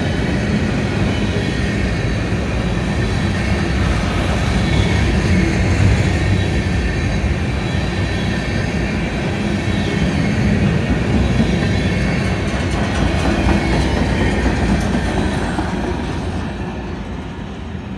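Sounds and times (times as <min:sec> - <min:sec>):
freight train wheels rumbling on rails: 0:00.0 - 0:17.9.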